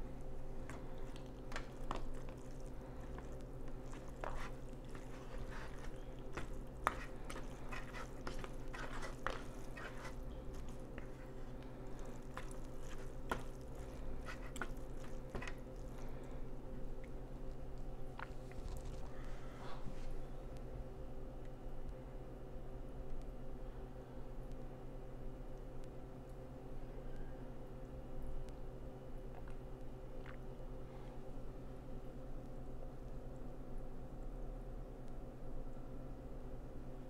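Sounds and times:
low background hum: 0.0s - 37.0s
fork stirring wet noodles: 0.5s - 16.2s.

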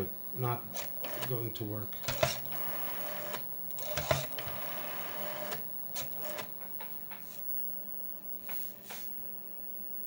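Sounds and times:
rotary telephone dial whirring: 0.8s - 1.4s, 2.0s - 6.5s.

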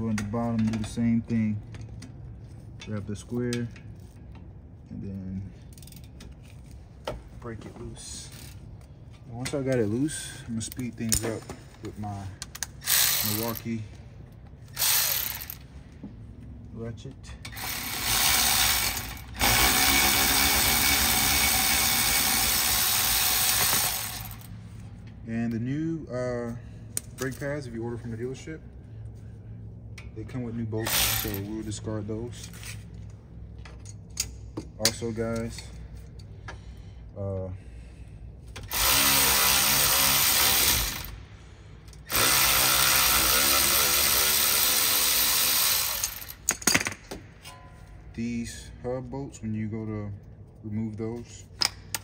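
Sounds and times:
cordless electric ratchet spinning: 12.8s - 13.7s, 14.7s - 15.6s, 17.5s - 24.5s, 30.9s - 31.5s, 38.7s - 41.2s, 42.0s - 46.5s.

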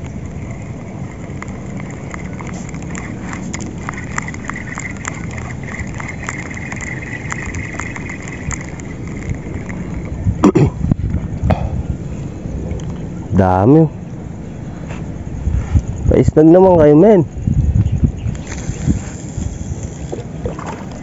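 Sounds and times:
fishing reel whirring and clicking: 0.0s - 11.2s, 17.8s - 21.0s
wind noise on microphone: 0.0s - 21.0s.

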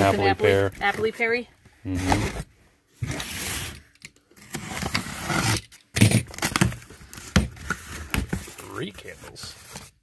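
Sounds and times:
cardboard and tape ripping: 4.4s - 8.5s.

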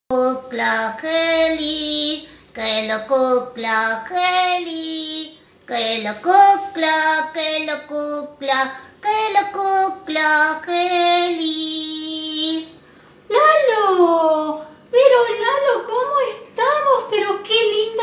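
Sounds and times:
child singing: 0.1s - 12.8s.

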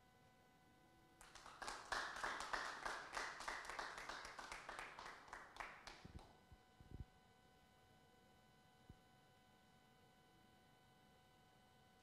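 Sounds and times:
small audience clapping: 1.2s - 6.4s.

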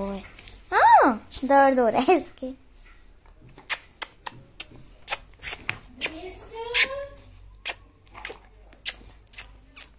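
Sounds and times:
puppy whining: 0.0s - 1.2s.

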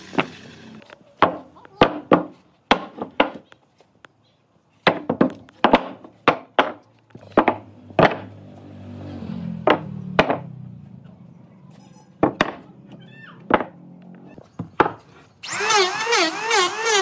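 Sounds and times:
tool striking wood: 7.4s - 8.3s.

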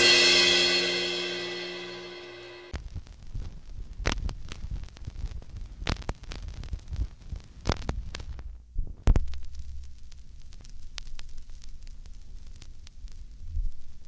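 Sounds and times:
rock and roll chord: 0.0s - 2.7s
low hum: 0.0s - 2.8s
record clicks and pops: 2.8s - 14.0s.

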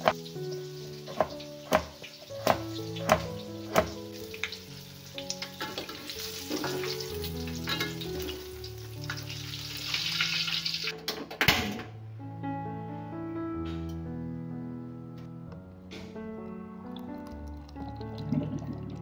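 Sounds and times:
knife striking cutting board: 0.0s - 0.2s, 1.1s - 4.0s
oil sizzling in a wok: 0.0s - 11.0s
soft background music: 0.0s - 19.0s.

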